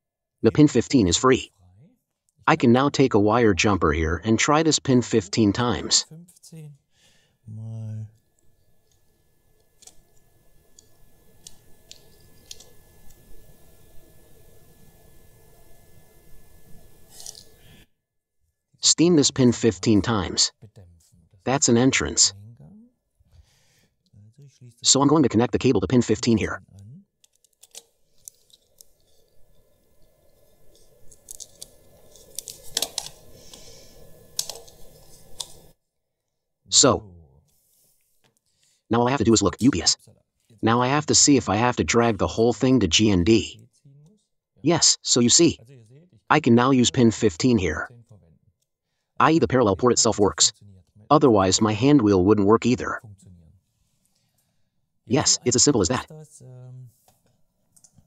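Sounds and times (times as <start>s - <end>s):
low steady hum: 0.4s - 35.8s, 36.7s - 58.0s
faint high tone: 7.5s - 8.2s
wire handling clicks: 30.7s - 33.6s, 34.3s - 35.6s.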